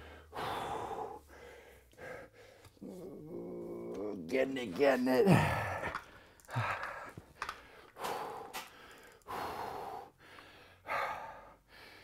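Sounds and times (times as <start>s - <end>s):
man breathing hard: 0.0s - 2.8s, 5.3s - 12.0s.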